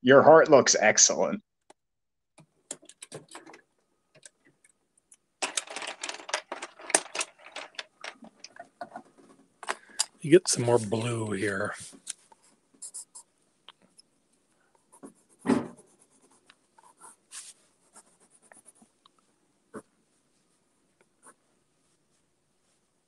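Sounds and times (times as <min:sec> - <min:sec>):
pencil scratching on paper: 0:14.8 - 0:19.0
loud thump: 0:15.4 - 0:15.8.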